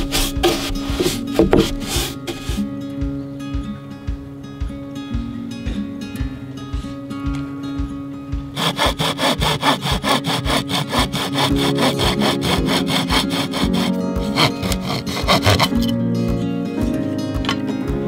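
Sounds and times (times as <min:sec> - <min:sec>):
hand saw cutting wood: 0:00.0 - 0:02.6, 0:08.6 - 0:15.9.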